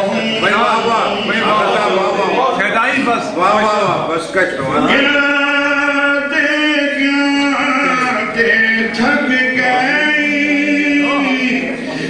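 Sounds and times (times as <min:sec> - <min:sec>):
man chanting verse: 0:00.0 - 0:12.0.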